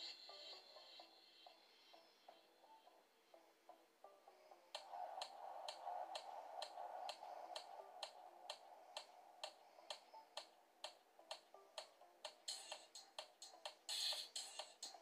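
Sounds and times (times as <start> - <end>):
soft background music: 0.0 - 15.0
clock-like ticking: 4.8 - 15.0.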